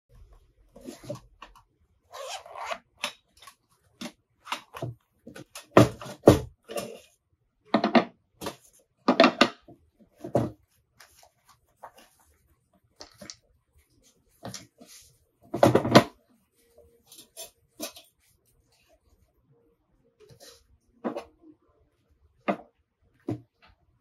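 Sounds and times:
zip pulled open: 2.1 - 2.8.

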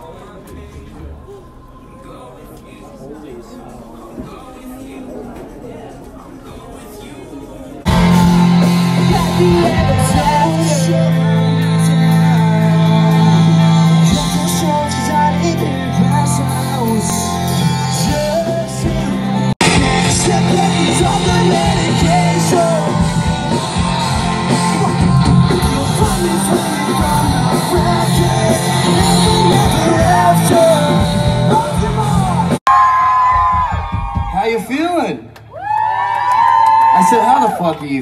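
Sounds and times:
live band playing amplified: 7.9 - 32.6
person singing: 7.9 - 32.6.

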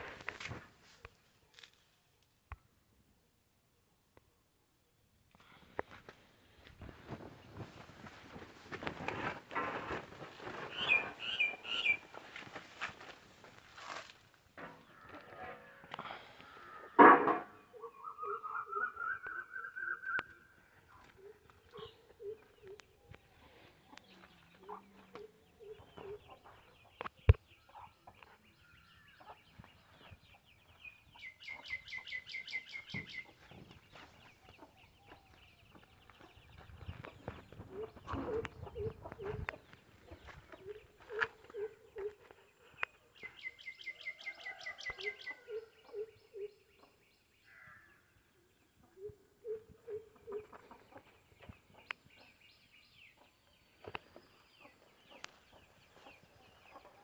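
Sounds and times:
chickens clucking: 16.7 - 28.5, 32.7 - 43.4, 48.9 - 52.4, 53.2 - 57.0.

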